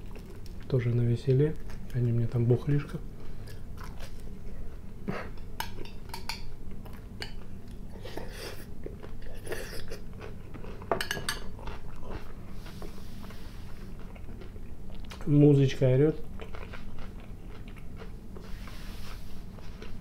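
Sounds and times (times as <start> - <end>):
chewing and mouth sounds: 0.0 - 0.7, 3.3 - 15.3, 16.2 - 18.8, 19.5 - 20.0.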